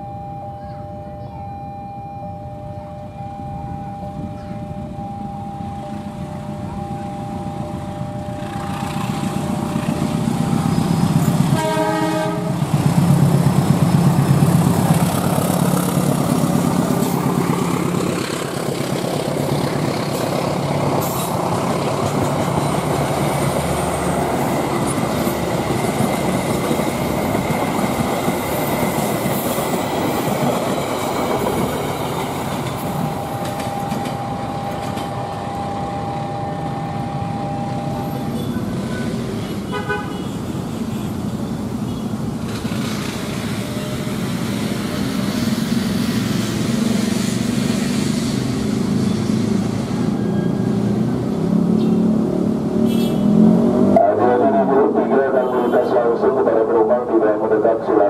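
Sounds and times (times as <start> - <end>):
locomotive engine passing: 4.1 - 39.7, 40.5 - 58.0
train coaches rolling on rails: 5.6 - 58.0
train horn blast: 11.5 - 12.7, 36.4 - 40.4, 52.8 - 53.6
steady two-note tone: 33.2 - 38.8.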